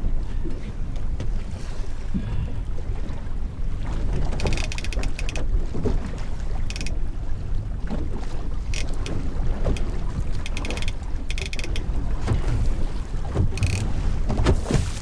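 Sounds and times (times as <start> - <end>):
low rumble of wind and water: 0.0 - 15.0
fishing reel drag clicking: 4.4 - 5.4, 6.7 - 7.0, 8.7 - 9.8, 10.4 - 11.8, 13.6 - 13.9.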